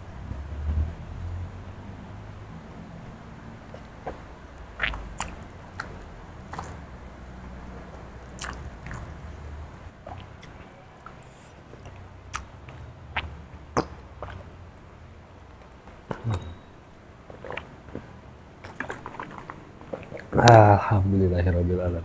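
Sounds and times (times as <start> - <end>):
lip smacks: 3.6 - 7.0, 8.2 - 9.3, 10.0 - 14.5, 15.5 - 16.6, 17.3 - 20.6
swallowing: 3.6 - 7.0, 8.2 - 14.6, 15.6 - 20.9.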